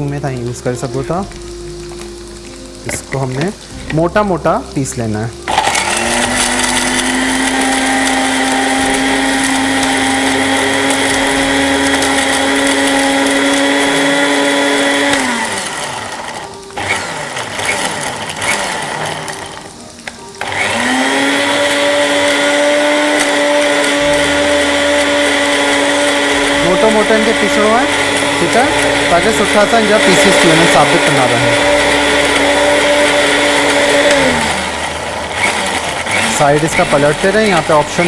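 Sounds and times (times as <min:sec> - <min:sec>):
electric grinder motor whining: 0:05.5 - 0:38.0.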